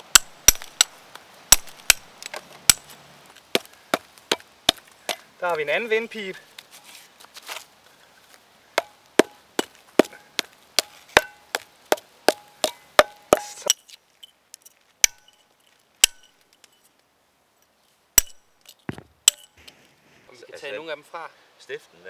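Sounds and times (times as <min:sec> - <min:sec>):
hammer striking chisel on metal: 0:12.3 - 0:13.8.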